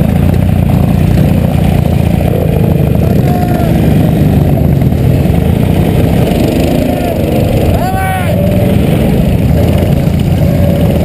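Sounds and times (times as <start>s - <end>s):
motorcycle engine rumbling: 0.0s - 11.0s.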